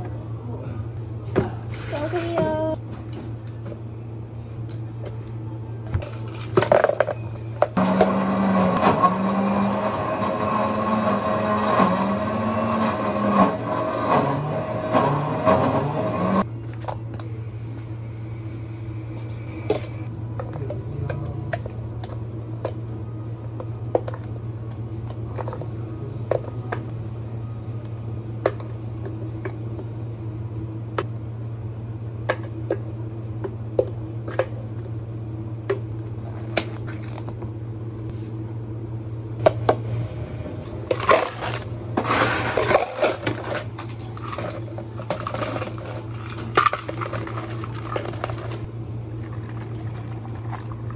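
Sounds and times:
steady low hum: 0:00.0 - 0:12.3, 0:15.2 - 0:50.9
ice cubes clattering into cups: 0:40.9 - 0:48.7
plastic cups clicking: 0:40.9 - 0:48.7.

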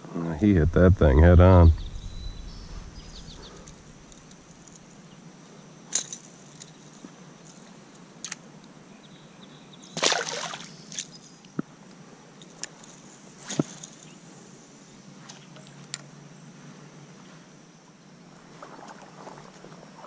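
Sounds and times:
faint river ambience: 0:00.0 - 0:20.0
fish splashing into water: 0:10.0 - 0:10.7.

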